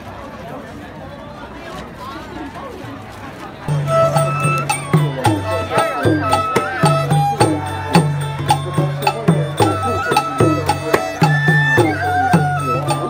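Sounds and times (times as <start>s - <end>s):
barrel drum beating: 3.7s - 13.0s
fiddle: 3.7s - 13.0s
plucked lute: 3.7s - 13.0s
wind pipe sliding notes: 3.7s - 13.0s.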